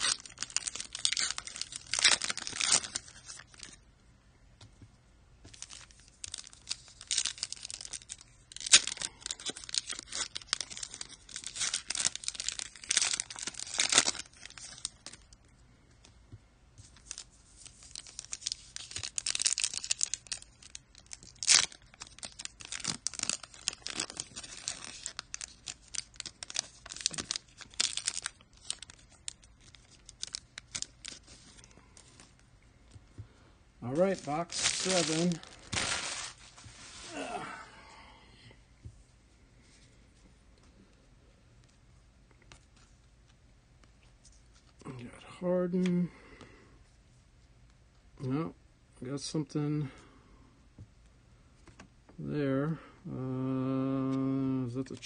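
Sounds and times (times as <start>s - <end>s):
packaging tearing and rustling: 0.0s - 3.8s, 5.5s - 15.3s, 16.8s - 32.3s, 33.9s - 37.2s.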